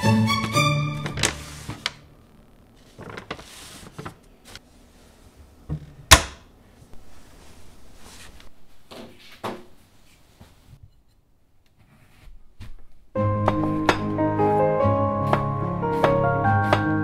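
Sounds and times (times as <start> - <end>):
violin music: 0.0 - 1.8, 13.2 - 17.0.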